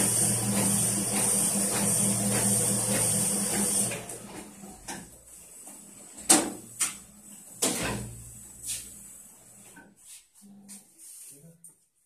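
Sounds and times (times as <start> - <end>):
printing press running: 0.0 - 9.6.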